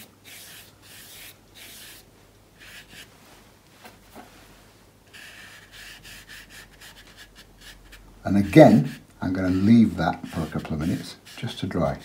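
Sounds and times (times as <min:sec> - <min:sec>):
brush stroking wet paper: 0:05.1 - 0:12.0.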